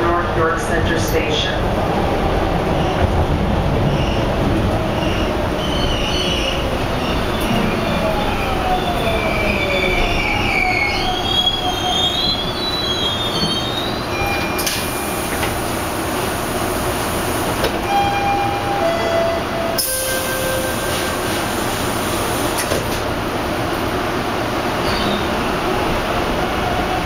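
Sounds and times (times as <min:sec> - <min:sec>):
train running rumble: 0:00.0 - 0:27.0
train doors sliding open: 0:02.7 - 0:23.9
train wheels squealing: 0:05.0 - 0:07.8, 0:08.8 - 0:15.2, 0:24.8 - 0:25.6.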